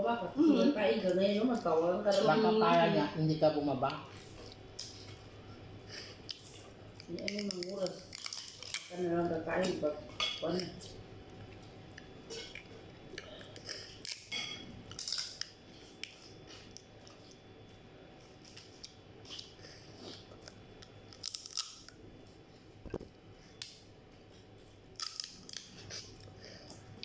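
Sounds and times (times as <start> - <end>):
crab shells cracking: 6.3 - 9.0, 11.3 - 16.9, 20.4 - 22.0, 24.9 - 26.2.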